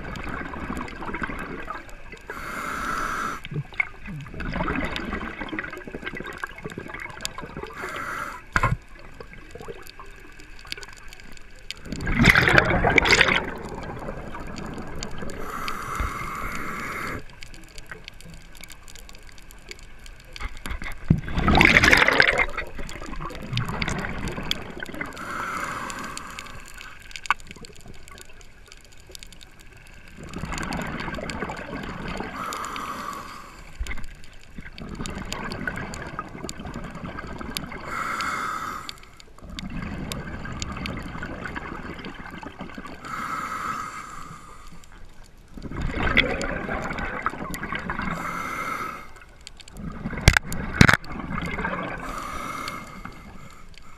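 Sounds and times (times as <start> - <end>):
exhaled bubbles gurgling: 0.0 - 53.9
regulator inhale hiss: 2.3 - 3.6, 7.7 - 8.8, 15.2 - 17.4, 25.1 - 27.1, 32.2 - 33.9, 37.8 - 39.3, 43.0 - 45.0, 48.1 - 49.3, 52.0 - 53.9.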